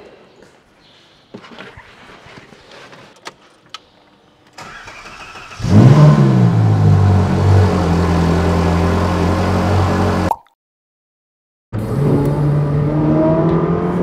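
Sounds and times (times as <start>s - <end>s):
car engine starting and idling: 4.5s - 10.3s.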